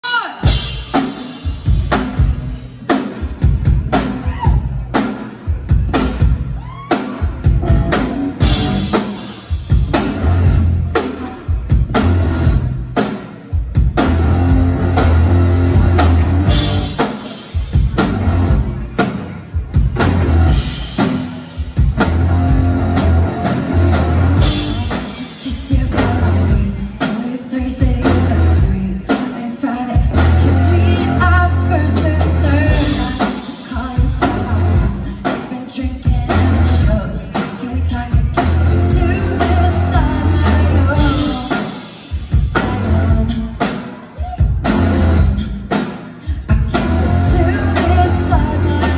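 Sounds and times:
drum kit: 0.0 - 48.9
bass guitar: 0.4 - 48.9
person singing: 23.0 - 48.9.

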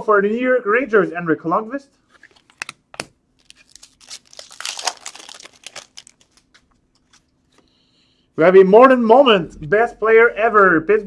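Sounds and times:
wrapper crinkling and tearing: 3.4 - 7.3.

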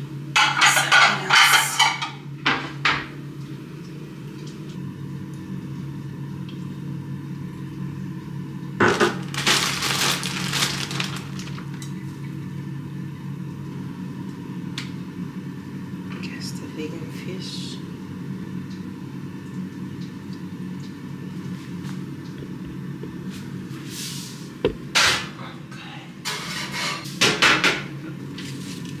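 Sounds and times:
steady low hum: 0.0 - 26.4
containers clattering: 8.8 - 11.8
plastic bag crinkling: 9.0 - 11.9.

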